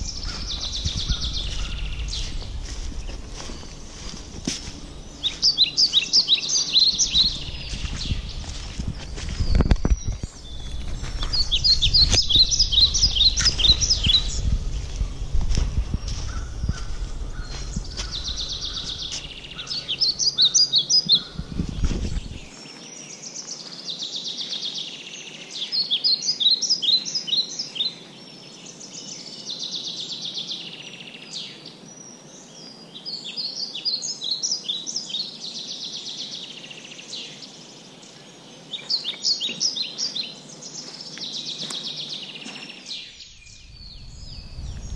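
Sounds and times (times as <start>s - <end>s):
footsteps on dry leaves: 0.0s - 22.8s, 40.8s - 44.9s
small birds chirping: 0.0s - 44.9s.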